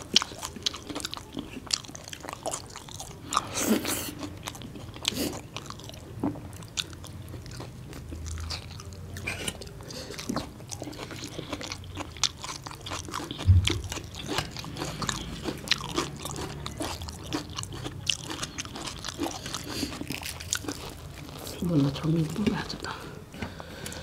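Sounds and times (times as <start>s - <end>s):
chewing fried bread: 0.0s - 24.0s
dull thump: 13.4s - 14.0s.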